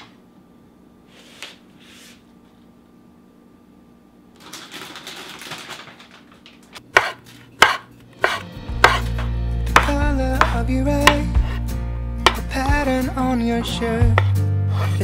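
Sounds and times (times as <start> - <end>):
knife chopping on wooden board: 6.9 - 11.6, 12.2 - 12.5, 13.6 - 14.9
background music with bass: 8.4 - 15.0.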